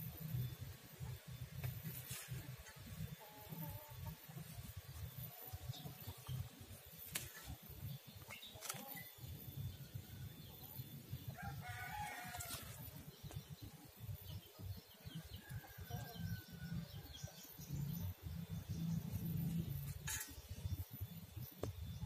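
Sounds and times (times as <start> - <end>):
rooster crowing: 11.3 - 12.8.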